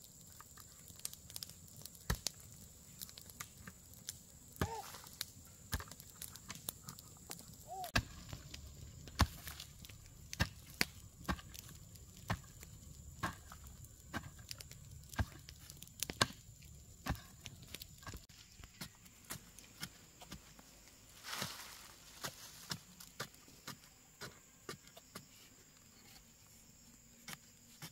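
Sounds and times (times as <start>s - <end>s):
hoe chopping into dry earth: 7.7s - 8.5s, 9.1s - 9.7s, 13.2s - 14.4s.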